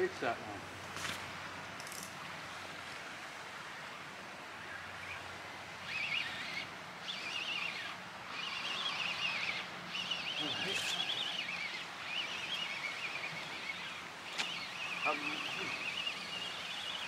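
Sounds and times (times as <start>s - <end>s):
wind and sea hiss: 0.0s - 17.0s
fishing reel whirring: 4.9s - 17.0s.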